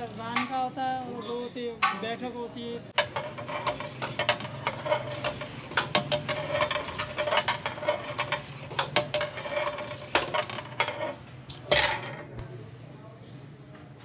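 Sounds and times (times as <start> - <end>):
metal ladle scraping steel pot: 2.9 - 12.3.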